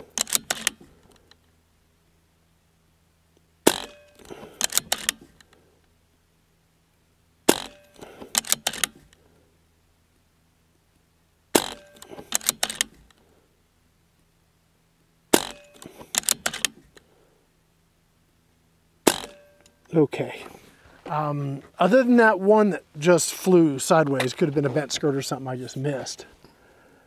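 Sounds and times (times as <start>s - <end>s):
rifle action clicks: 0.0s - 1.4s, 3.7s - 5.6s, 7.5s - 9.2s, 11.6s - 13.2s, 15.4s - 16.8s
air rifle shots: 3.6s - 5.3s, 7.4s - 9.0s, 11.5s - 13.0s, 15.3s - 16.8s, 19.0s - 19.5s.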